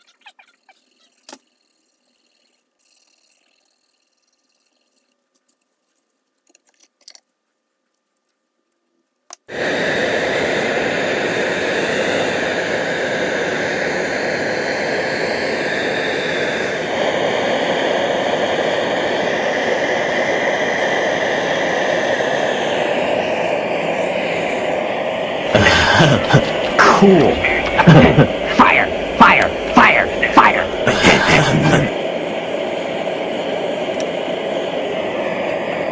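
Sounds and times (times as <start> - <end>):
gas torch flame rushing: 9.5 - 35.9.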